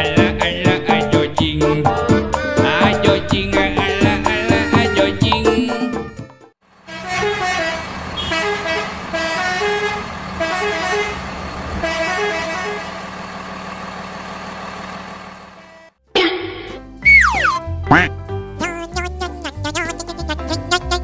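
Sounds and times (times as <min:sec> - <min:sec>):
upbeat music: 0:00.0 - 0:06.5, 0:16.2 - 0:21.0.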